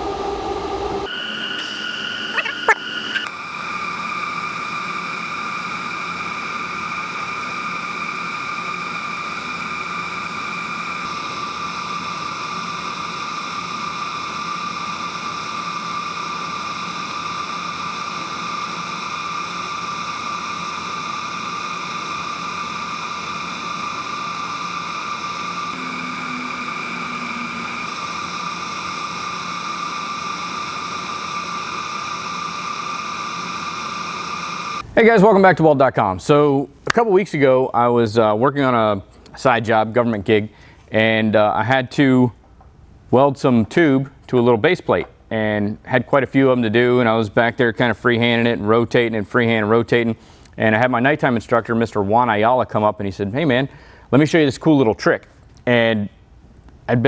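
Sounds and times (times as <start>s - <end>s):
welding arc hissing and whining: 0.0s - 35.2s.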